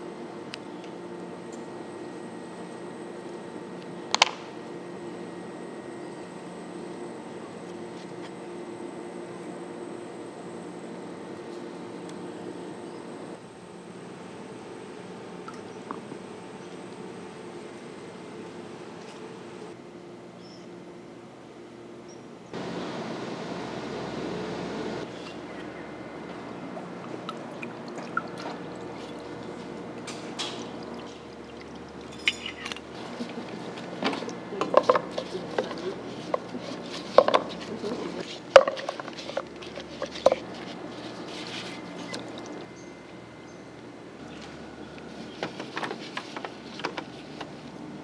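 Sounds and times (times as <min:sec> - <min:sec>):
wet handling sounds: 0:25.2 - 0:42.7
liquid pouring from bottle: 0:27.0 - 0:33.6.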